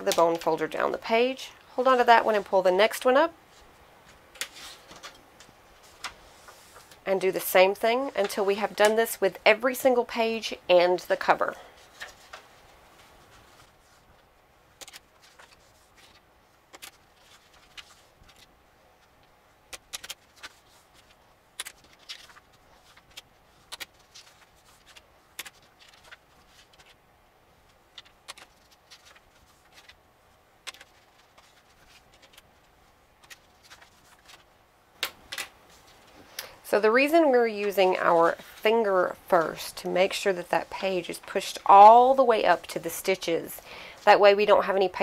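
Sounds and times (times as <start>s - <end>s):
paper pages rustling: 3.5s - 7.0s, 11.8s - 27.0s, 27.6s - 36.4s, 37.5s - 43.2s.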